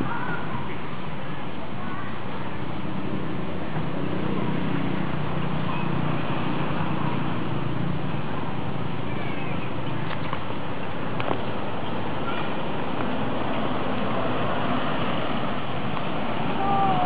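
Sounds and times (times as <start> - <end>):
steady rumbling: 0.0 - 17.0.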